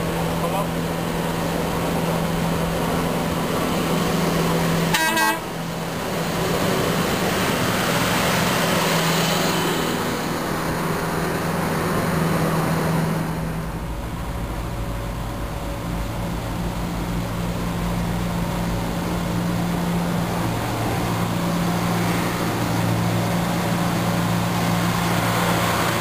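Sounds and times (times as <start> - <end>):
short high horn toot: 4.9 - 5.4.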